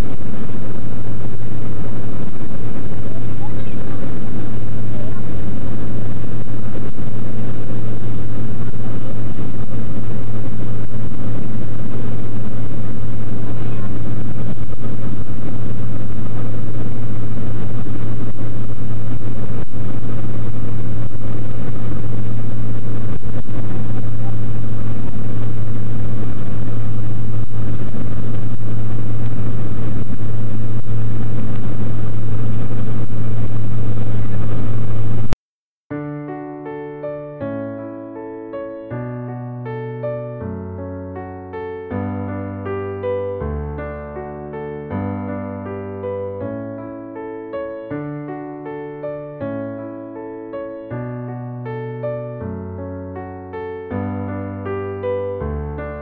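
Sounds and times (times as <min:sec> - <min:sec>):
light aircraft engine drone in cabin: 0:00.0 - 0:35.4
rushing noise: 0:00.0 - 0:35.4, 0:36.0 - 0:56.0.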